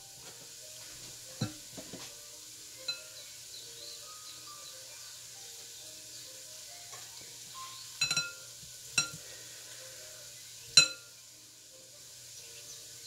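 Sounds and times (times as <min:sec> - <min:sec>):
spoon clinking on glass bowl: 0:08.0 - 0:09.2, 0:10.8 - 0:11.1.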